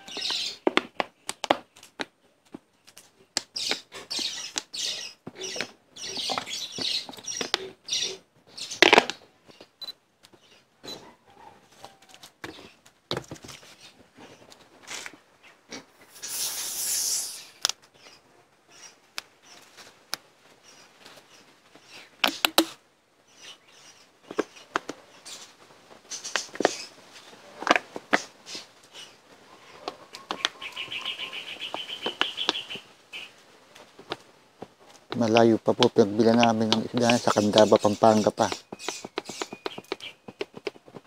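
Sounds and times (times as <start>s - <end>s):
hissy rustle: 11.6s - 35.1s
sharp clicks and knocks: 22.2s - 22.8s, 35.1s - 41.0s
bird chirping trill: 30.3s - 33.4s, 36.5s - 40.6s.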